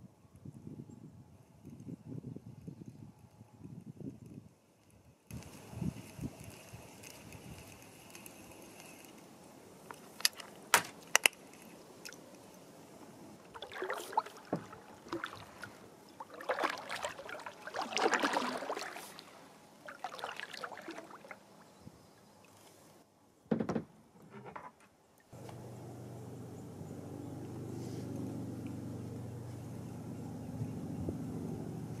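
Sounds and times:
water swishing off paddle: 13.4 - 21.4.

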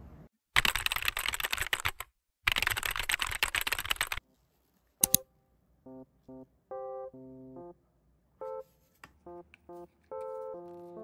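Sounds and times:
computer keyboard typing: 0.6 - 4.2.

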